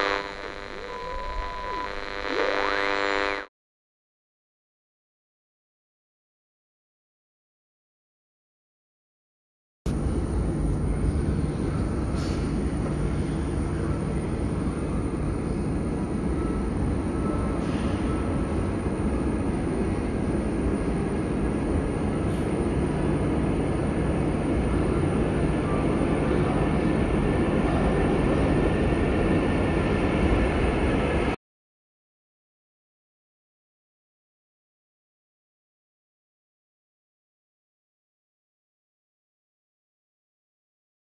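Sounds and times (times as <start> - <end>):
low rumble of rail traffic: 9.9 - 31.4.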